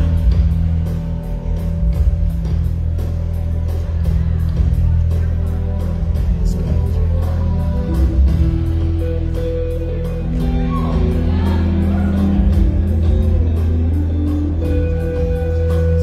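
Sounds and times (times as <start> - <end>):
bass guitar: 0.0 - 16.0
electric guitar: 4.5 - 16.0.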